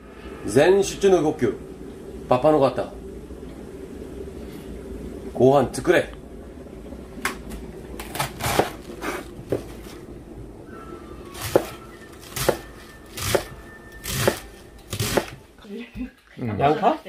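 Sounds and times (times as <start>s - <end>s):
knife cutting cabbage: 8.0s - 9.3s, 11.4s - 15.4s.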